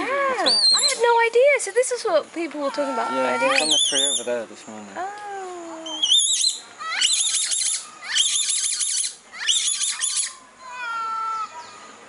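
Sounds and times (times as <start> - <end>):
young monkey squealing: 0.4 - 1.1, 2.6 - 4.3, 5.8 - 11.8.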